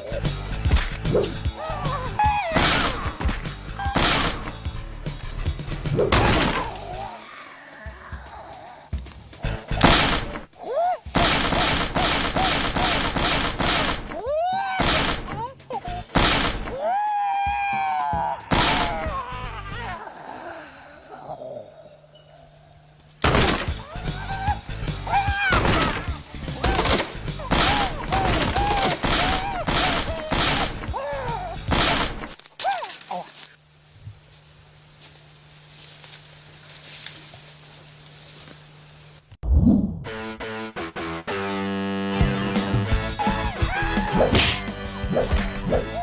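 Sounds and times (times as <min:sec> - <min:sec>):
high-pitched kung-fu battle cries: 0:01.4 - 0:04.4, 0:16.7 - 0:21.7, 0:23.7 - 0:31.7, 0:43.0 - 0:44.8
punch or kick hits: 0:11.2 - 0:14.2, 0:16.2 - 0:16.7
man yelling battle cries: 0:43.1 - 0:44.4.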